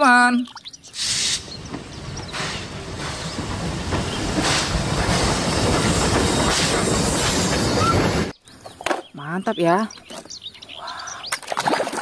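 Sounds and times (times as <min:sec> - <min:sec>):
steam locomotive hissing: 0:01.0 - 0:08.3.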